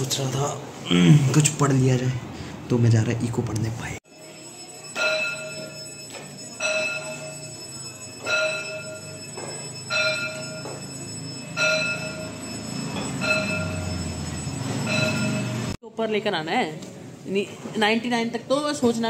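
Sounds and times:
bell-like chime ringing: 4.1 - 15.8.

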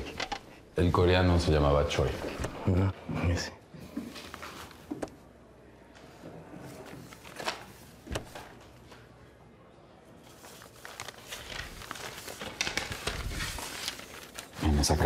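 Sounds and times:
rustling and crinkling: 10.2 - 15.0.

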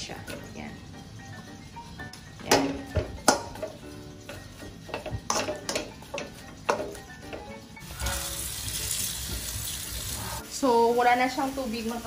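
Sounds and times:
background music: 0.0 - 12.0
spatula clacking against wok: 2.5 - 7.6
pork sizzling in pan: 3.3 - 12.0.

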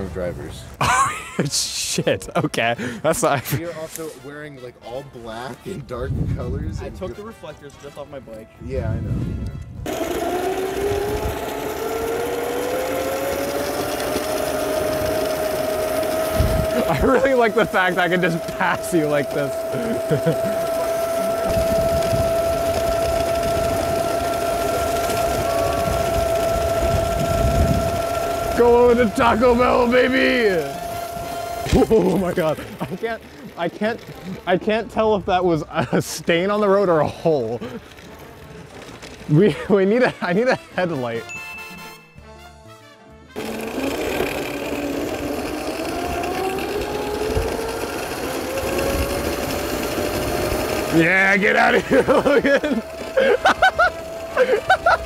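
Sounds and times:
electric scooter motor whining: 0.0 - 1.9, 9.1 - 42.0, 43.4 - 55.0
wind and road rumble: 5.8 - 7.1, 8.5 - 35.7, 43.5 - 55.0.

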